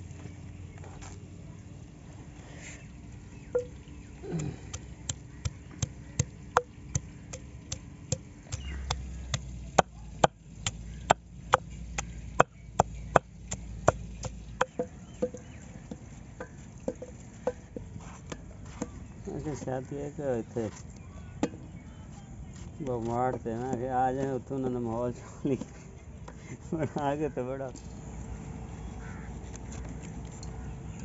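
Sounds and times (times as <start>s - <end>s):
pestle pounding in stone mortar: 3.6s - 19.0s.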